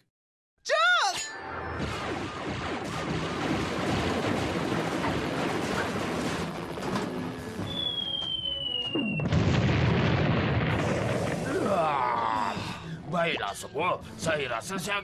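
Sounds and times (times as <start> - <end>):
cartoon rapid gunfire: 1.8 - 6.5
high falling whistle: 7.6 - 9.3.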